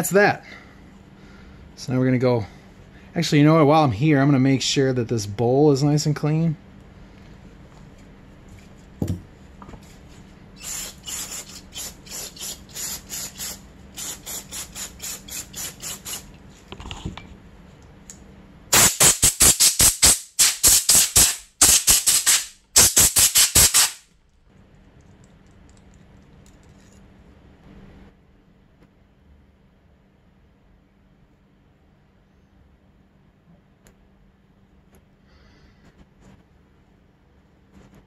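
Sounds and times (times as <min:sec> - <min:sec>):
thump: 0:09.0 - 0:09.2
hissing scrubbing bursts: 0:10.6 - 0:16.3.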